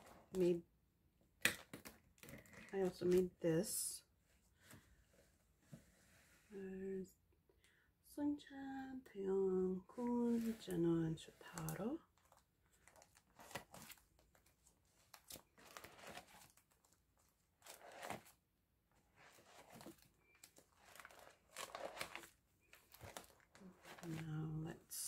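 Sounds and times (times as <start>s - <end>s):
plastic crinkling and rustling: 10.2s - 18.4s, 19.0s - 24.4s.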